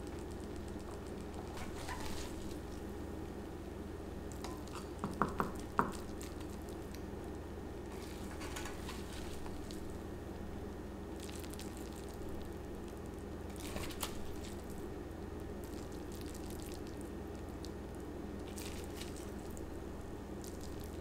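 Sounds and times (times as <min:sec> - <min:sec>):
spatula scraping food: 0:01.5 - 0:02.6.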